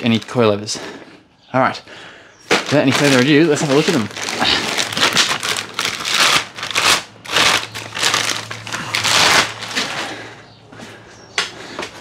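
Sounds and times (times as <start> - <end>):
packaging rustling: 2.5 - 10.3.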